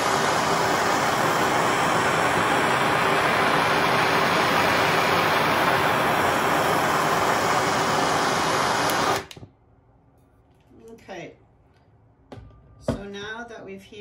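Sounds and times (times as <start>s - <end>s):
gas torch hissing: 0.0s - 9.5s.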